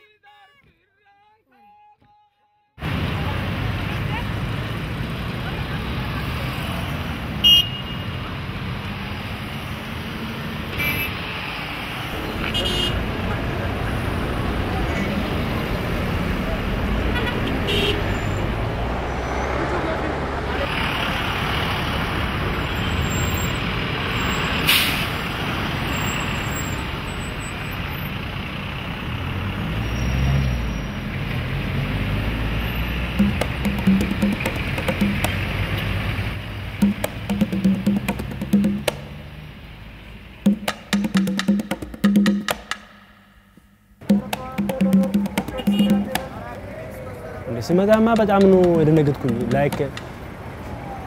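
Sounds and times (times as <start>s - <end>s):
passing car engines: 2.8s - 40.5s, 45.1s - 51.0s
road traffic rumble: 2.8s - 51.0s
car horn beeps: 7.4s - 8.1s, 10.8s - 11.2s, 12.4s - 13.1s, 17.1s - 18.3s, 45.4s - 46.3s
air brake hiss: 24.6s - 25.2s.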